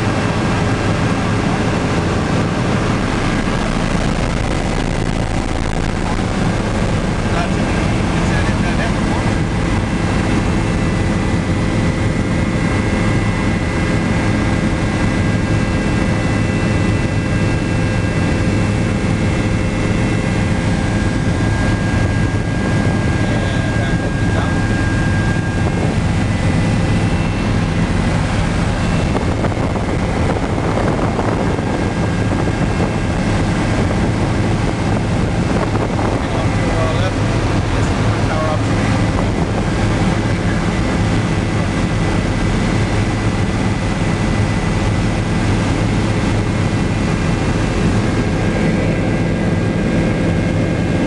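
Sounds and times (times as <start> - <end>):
helicopter rotor and engine drone: 0.0 - 51.0
high-pitched whines: 2.4 - 43.2.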